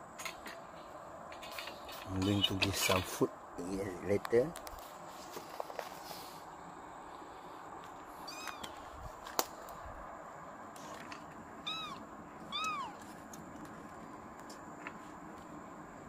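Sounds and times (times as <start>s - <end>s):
kittens mewing: 11.6s - 13.1s.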